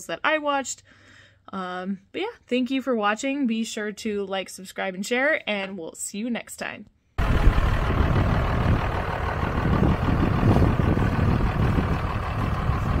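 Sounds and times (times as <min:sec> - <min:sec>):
diesel engine idling: 0:07.2 - 0:13.0.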